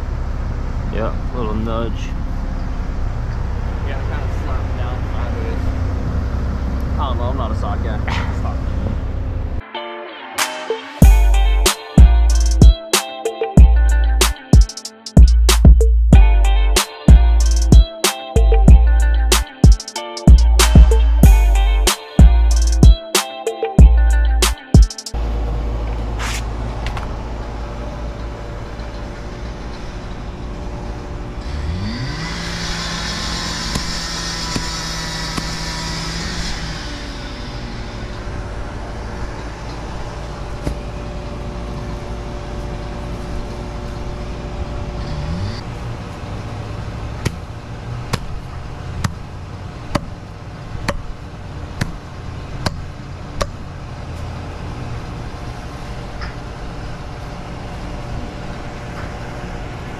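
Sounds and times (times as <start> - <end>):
engine revving: 25.2 - 42.4, 44.0 - 49.8.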